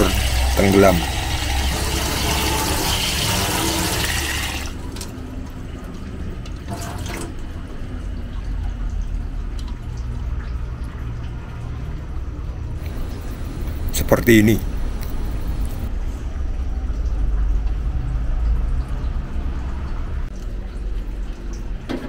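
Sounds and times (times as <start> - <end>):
tap water filling metal pot: 0.0 - 5.1.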